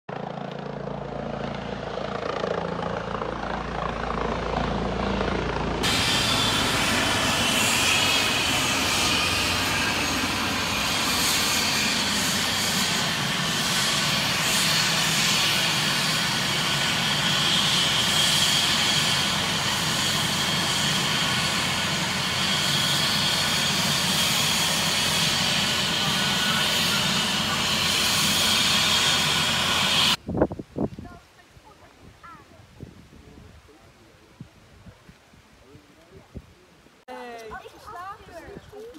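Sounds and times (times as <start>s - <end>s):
helicopter rotor drone: 0.1s - 30.2s
helicopter turbine whine: 0.1s - 30.2s.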